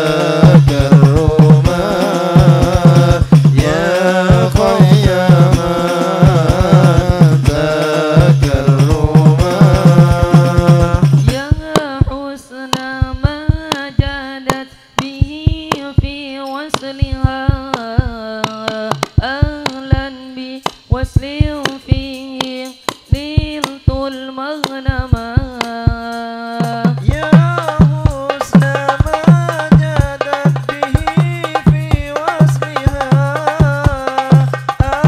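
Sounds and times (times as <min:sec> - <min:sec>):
drum ensemble: 0:00.0 - 0:12.2, 0:12.8 - 0:24.2, 0:24.9 - 0:35.0
hand strikes on frame drums: 0:00.0 - 0:12.2, 0:16.7 - 0:20.0, 0:26.6 - 0:35.0
man singing ornamented melody: 0:00.0 - 0:12.7, 0:25.5 - 0:35.0.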